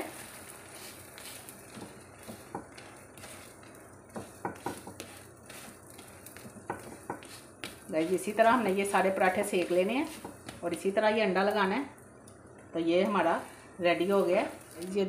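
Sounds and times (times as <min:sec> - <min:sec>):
spatula clicking and scraping: 0:00.0 - 0:10.9
flatbread sizzling in oil: 0:00.0 - 0:15.0.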